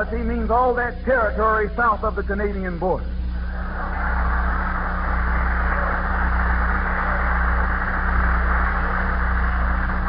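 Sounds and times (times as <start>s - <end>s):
low electrical hum: 0.0s - 10.0s
audience applauding: 3.4s - 10.0s.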